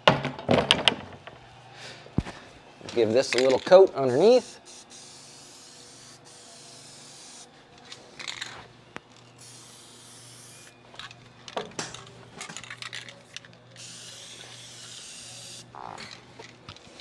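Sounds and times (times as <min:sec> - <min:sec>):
handling clicks and knocks: 0:02.9 - 0:03.8
aerosol can spraying: 0:04.3 - 0:07.5, 0:09.4 - 0:10.7, 0:13.8 - 0:15.7.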